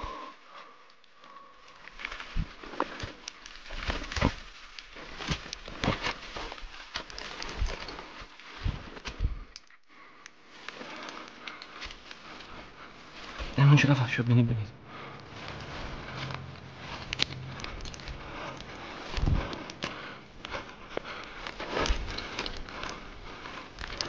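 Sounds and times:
brush rustling: 1.6s - 9.6s, 10.4s - 24.0s
footsteps crunching through dry leaves: 15.2s - 19.2s.

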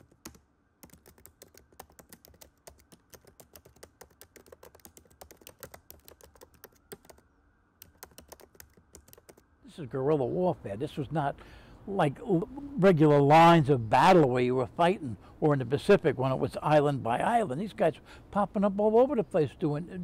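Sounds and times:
rapid keyboard typing clicks: 0.0s - 9.5s.

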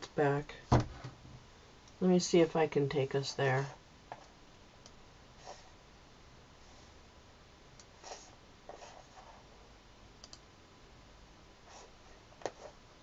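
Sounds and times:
soft brushing: 8.0s - 9.7s
computer mouse clicks: 10.2s - 10.5s.

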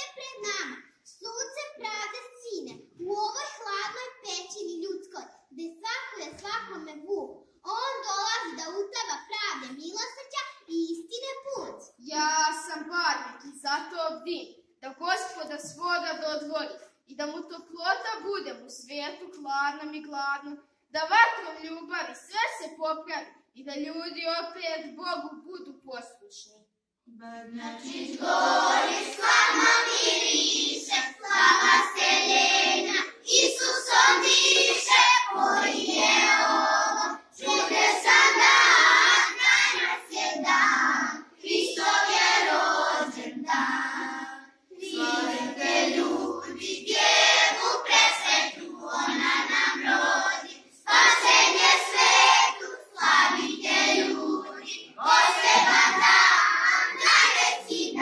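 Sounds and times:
children singing together: 27.6s - 58.0s.

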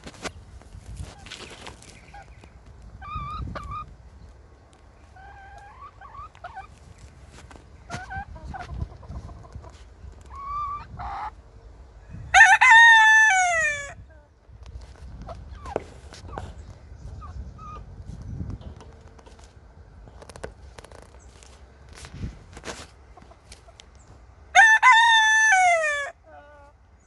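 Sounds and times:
chickens clucking: 1.0s - 11.5s, 15.0s - 21.6s, 22.8s - 24.3s, 25.2s - 27.0s
rooster crowing: 12.3s - 14.0s, 24.5s - 26.3s.

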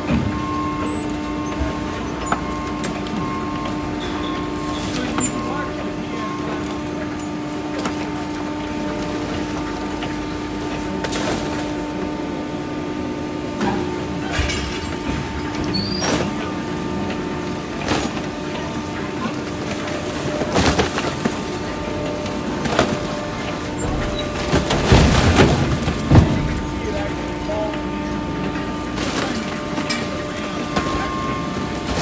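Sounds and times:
garbage truck engine and hydraulics: 0.0s - 32.0s
boxes knocking against metal container: 13.6s - 18.4s, 20.0s - 32.0s.

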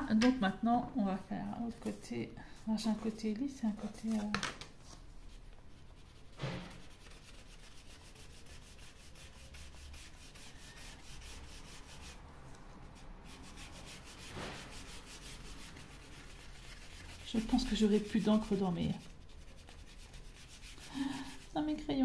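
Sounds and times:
marker rubbing on wood: 13.3s - 21.6s.

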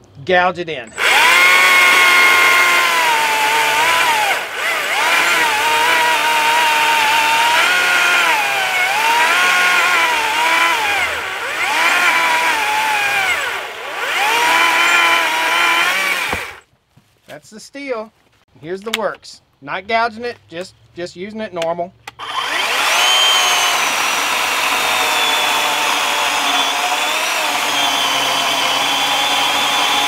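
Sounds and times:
chainsaw cutting log: 0.9s - 16.6s, 22.2s - 30.0s.

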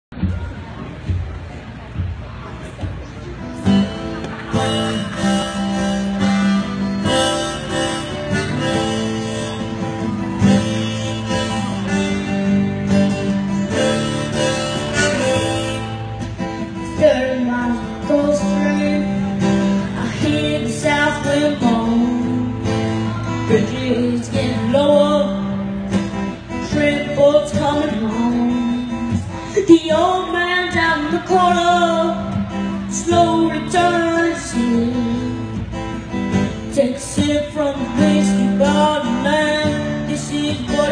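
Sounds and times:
acoustic guitar: 0.1s - 40.9s
harmonica: 3.7s - 16.8s.

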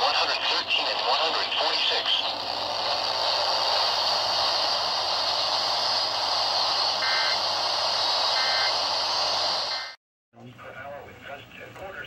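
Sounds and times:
radio static hiss: 0.0s - 2.4s.

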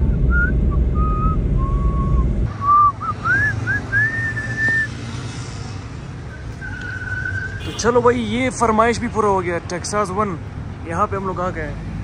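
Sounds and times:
low rumble of moving car: 0.0s - 12.0s
person whistling a tune: 0.1s - 5.0s.

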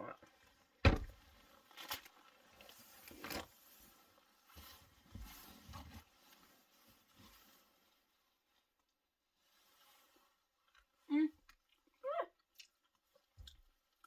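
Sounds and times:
clothing rustling: 0.4s - 11.0s.

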